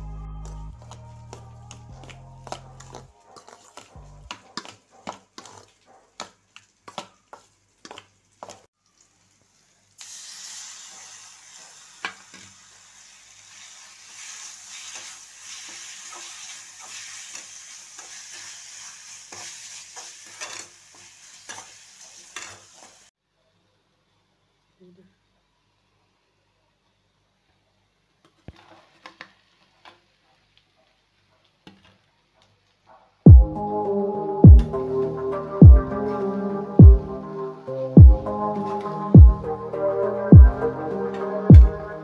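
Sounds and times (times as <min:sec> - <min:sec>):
onions sizzling in a pan: 0:00.4 - 0:23.1
spatula stirring: 0:00.8 - 0:08.7.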